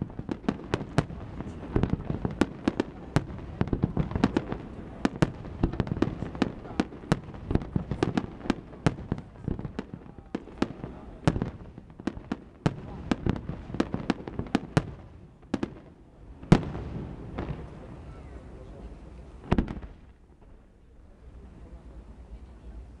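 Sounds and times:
fireworks bangs: 0.0s - 21.9s
rumble of fireworks bursts: 0.0s - 23.0s.

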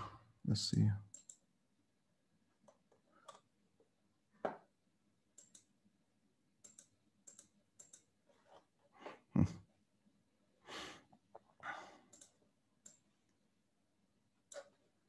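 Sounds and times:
faint mouse clicks: 1.1s - 1.5s, 2.6s - 3.5s, 5.3s - 5.7s, 6.6s - 8.1s, 12.1s - 13.1s, 14.4s - 14.8s.

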